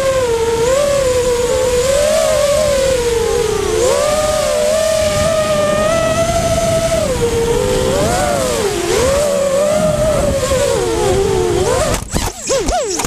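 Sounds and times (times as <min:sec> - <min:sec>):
air rushing over microphone: 0:00.0 - 0:12.4
quadcopter motors whining: 0:00.0 - 0:13.0.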